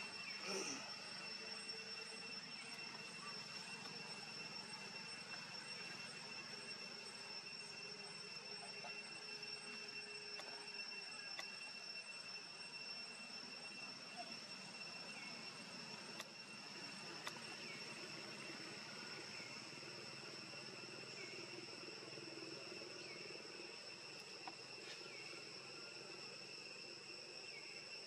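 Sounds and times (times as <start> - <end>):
insects droning: 0.0 - 28.0
faint clicks: 16.1 - 16.4, 17.2 - 17.4.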